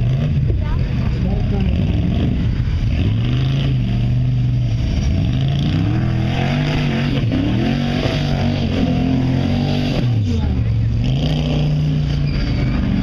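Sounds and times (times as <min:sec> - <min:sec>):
off-road buggy engine revving: 0:00.0 - 0:13.0.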